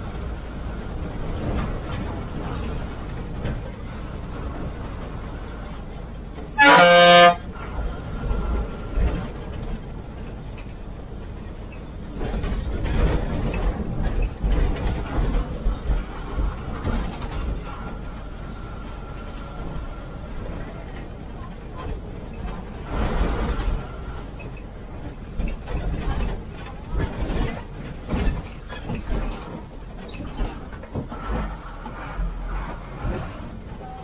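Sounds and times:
bus engine rumble: 0.0 - 34.0
road noise: 0.0 - 34.0
bus horn blast: 6.5 - 7.6.

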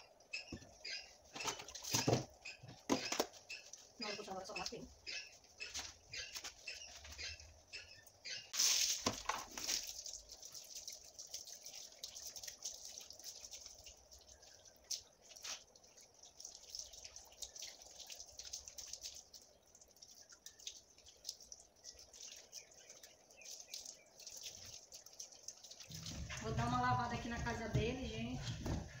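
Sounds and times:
water dripping on concrete: 2.4 - 7.1, 8.6 - 28.1
hose water splashing on dog: 8.5 - 29.0.

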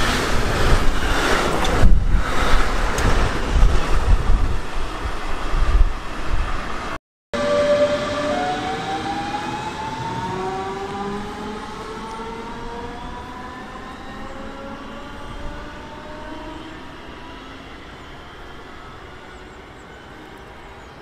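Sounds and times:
train rumble: 0.0 - 21.0
electric train motors whining: 7.4 - 19.3.

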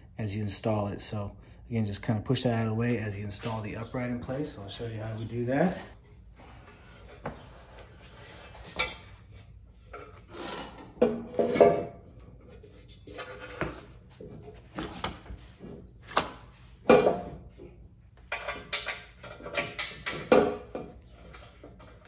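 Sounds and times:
metal knocks and clanks: 16.9 - 21.0.

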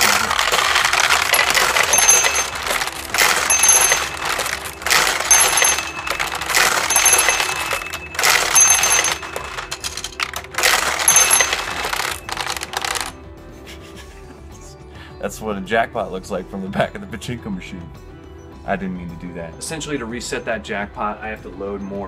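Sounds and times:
metal balls clattering: 0.0 - 13.2.

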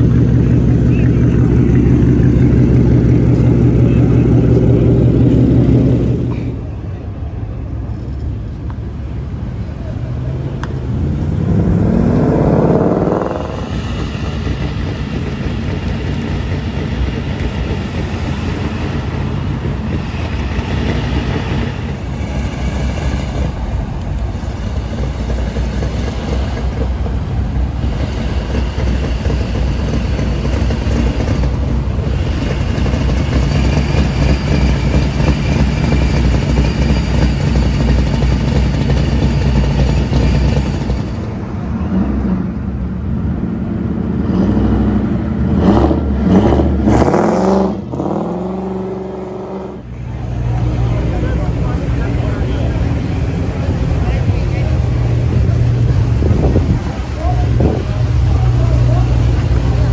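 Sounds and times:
low exhaust rumble: 0.0 - 46.9, 47.8 - 59.9
car engine revving past: 10.3 - 16.2, 44.0 - 53.1.

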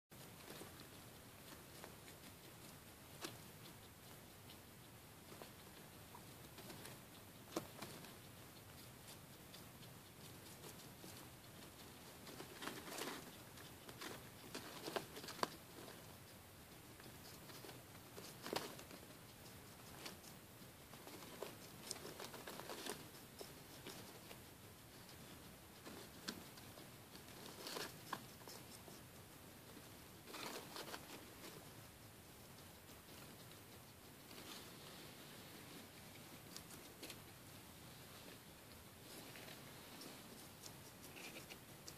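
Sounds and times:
guinea pigs rustling in hay bedding: 0.1 - 41.9
guinea pigs rustling in paper bag: 12.2 - 16.2, 19.8 - 24.4, 25.1 - 31.9.

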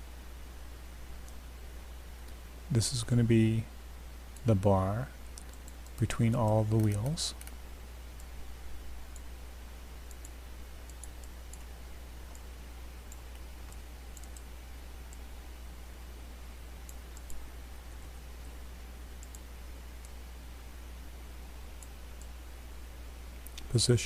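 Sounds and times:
steady low hum: 0.0 - 24.0
computer mouse clicks: 5.3 - 7.6, 10.0 - 11.7, 13.1 - 14.5, 16.8 - 17.4, 19.2 - 20.2, 21.7 - 22.3.

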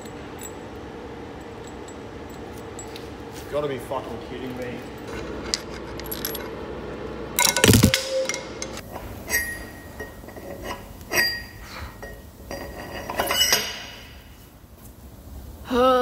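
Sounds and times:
steel clinking and knocking: 4.8 - 6.6, 7.4 - 14.3.

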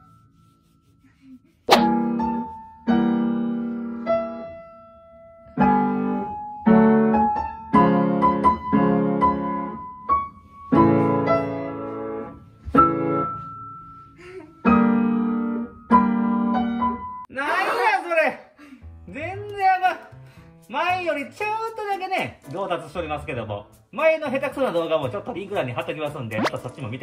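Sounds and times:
piano chords: 1.7 - 17.3.

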